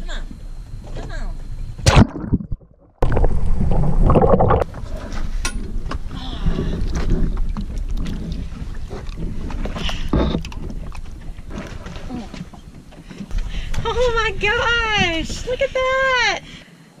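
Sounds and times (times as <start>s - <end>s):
water against boat hull: 1.9s - 16.4s
wind buffeting microphone: 3.3s - 16.5s.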